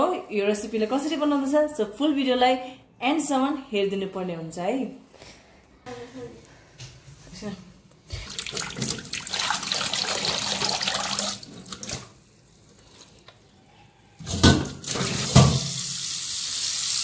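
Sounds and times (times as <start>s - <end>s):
tap running into a sink: 14.4s - 15.9s.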